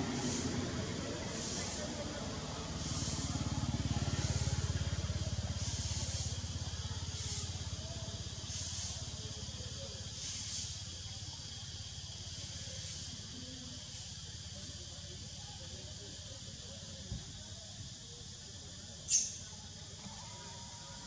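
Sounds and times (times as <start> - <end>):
low engine hum: 0.0 - 10.9
insects buzzing in hissing pulses: 0.0 - 21.0.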